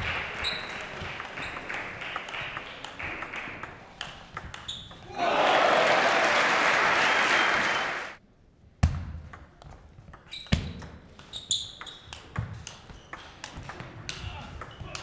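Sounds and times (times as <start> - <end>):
crowd applause: 0.0 - 3.6, 5.2 - 8.2.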